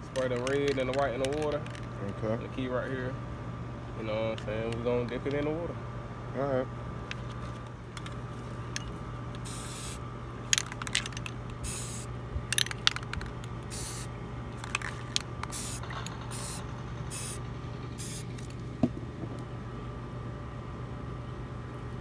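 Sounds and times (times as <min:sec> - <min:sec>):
spray paint can hissing: 0:09.4 - 0:10.0, 0:10.6 - 0:18.5.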